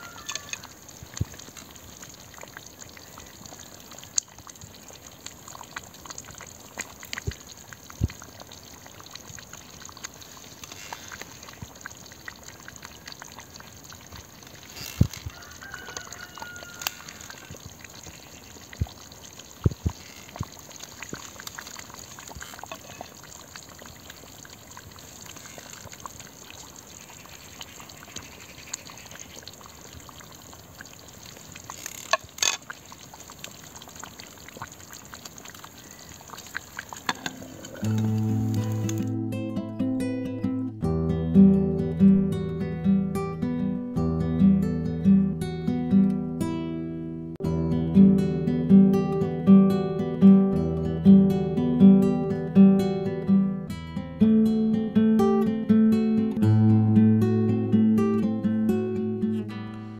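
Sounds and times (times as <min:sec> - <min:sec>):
stew bubbling in a pot: 0:00.0 - 0:39.2
fire crackling: 0:00.0 - 0:39.4.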